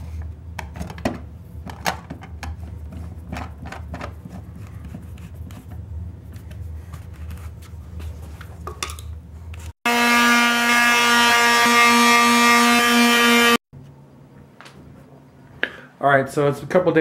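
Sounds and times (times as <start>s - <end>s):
electric palm sander whining: 9.9s - 13.6s.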